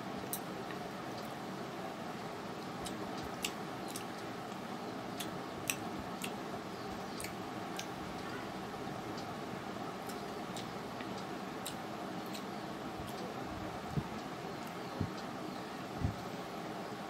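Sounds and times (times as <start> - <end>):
steady background hiss: 0.0 - 17.0
eating clicks: 2.7 - 8.3, 10.0 - 13.3.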